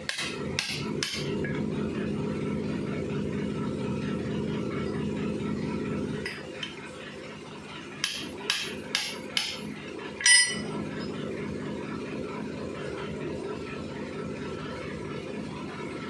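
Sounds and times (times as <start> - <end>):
low steady hum: 0.0 - 16.0
metal tapping on metal: 8.0 - 9.6
ringing metal clank: 10.2 - 10.7.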